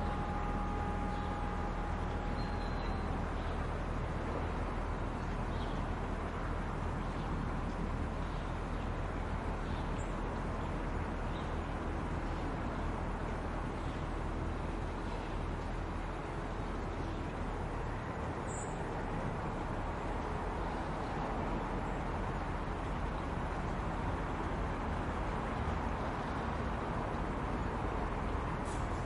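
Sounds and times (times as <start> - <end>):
low hum: 0.0 - 11.0
outdoor rumble and hiss: 0.0 - 29.0.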